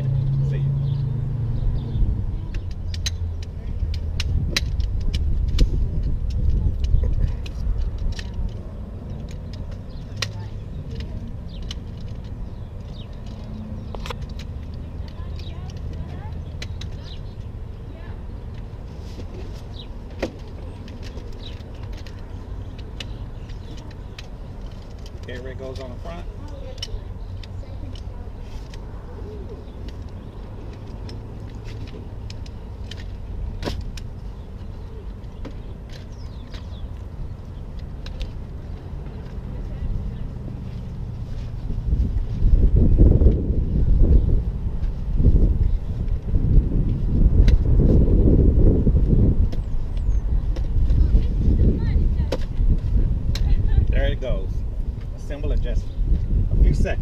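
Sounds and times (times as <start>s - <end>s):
steady low rumble: 0.0s - 57.0s
pole frame clicking and clacking: 2.4s - 17.6s, 18.4s - 28.9s, 29.5s - 43.4s.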